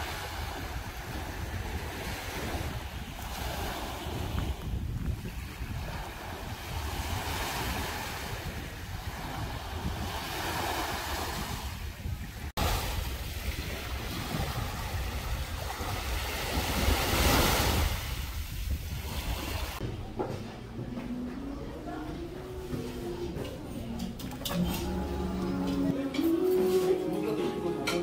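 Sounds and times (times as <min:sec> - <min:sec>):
small waves washing onto beach: 0:00.0 - 0:19.8
wind rumble on microphone: 0:00.0 - 0:19.8.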